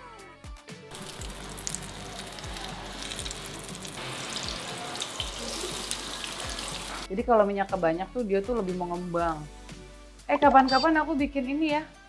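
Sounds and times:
egg sizzling in hot oil: 0.9 - 7.1.

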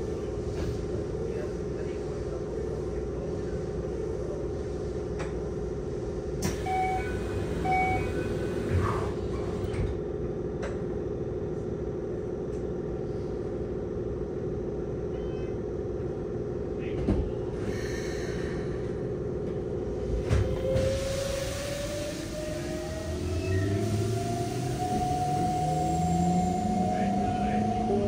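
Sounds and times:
train hum: 0.0 - 28.0
wheels rumbling on rails: 19.3 - 28.0.

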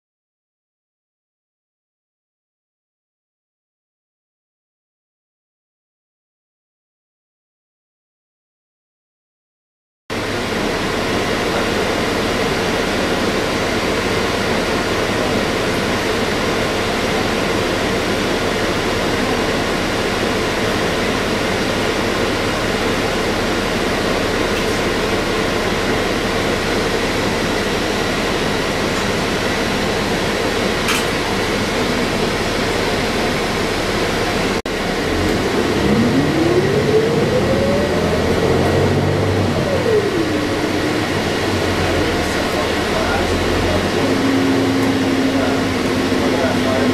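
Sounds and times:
bus drivetrain whine: 10.1 - 46.9
bus engine idling hum: 10.1 - 46.9.

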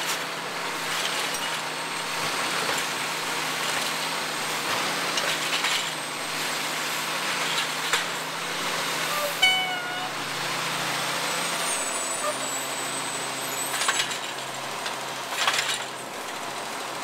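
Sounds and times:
garbage truck engine running: 0.0 - 17.0
short squeal: 9.0 - 10.5, 11.6 - 14.1.

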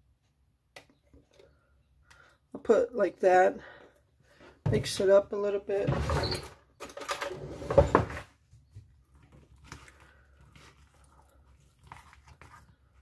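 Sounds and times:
spoon scraping and stirring in bowl: 9.1 - 13.0.

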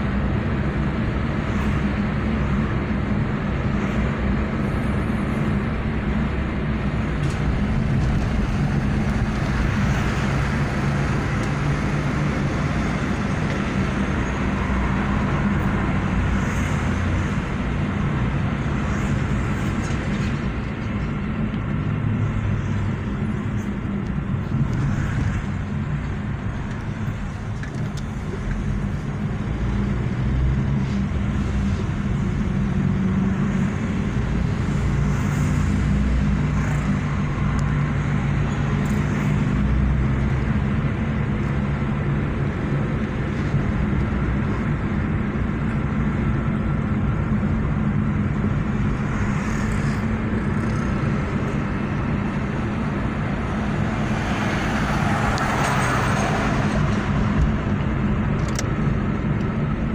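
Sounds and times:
low car engine hum: 0.0 - 59.9
tyre and road noise: 0.0 - 59.9.

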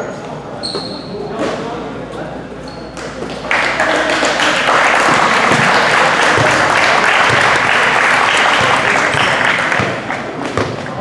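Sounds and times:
crowd applauding: 3.3 - 10.5.

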